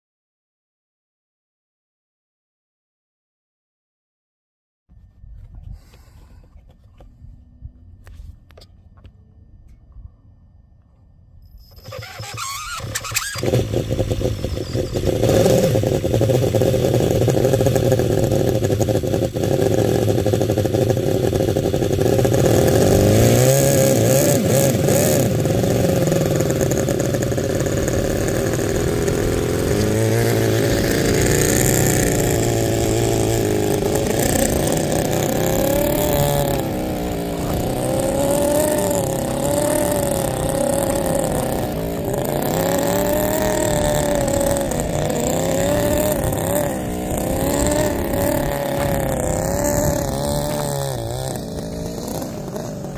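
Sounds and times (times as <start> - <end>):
miniature engine revving: 11.6 - 52.9.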